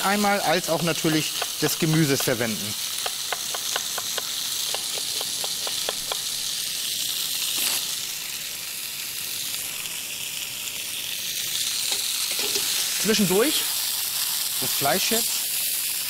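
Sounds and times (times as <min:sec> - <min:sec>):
meat sizzling in oil: 0:00.0 - 0:16.0
knife chopping on wooden board: 0:01.3 - 0:02.4, 0:03.0 - 0:06.2.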